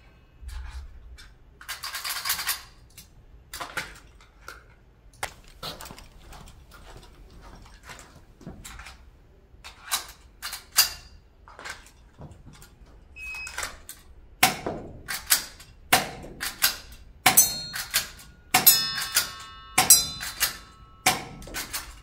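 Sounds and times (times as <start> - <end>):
airsoft pistol metallic clacks: 13.6 - 22.0.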